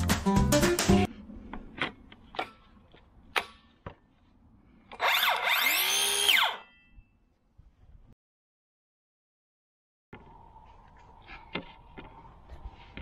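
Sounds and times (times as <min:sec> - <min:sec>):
circular saw motor whine: 0:05.0 - 0:06.7.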